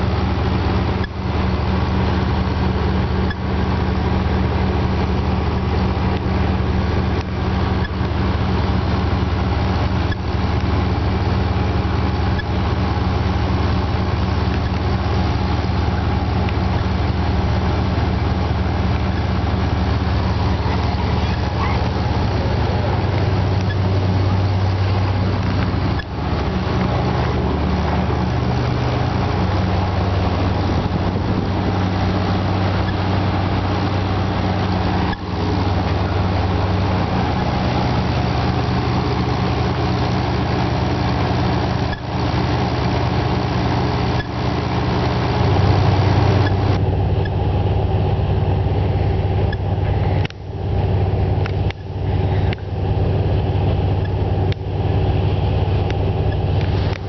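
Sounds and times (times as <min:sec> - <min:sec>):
ferry engines droning: 0:00.0 - 0:57.0.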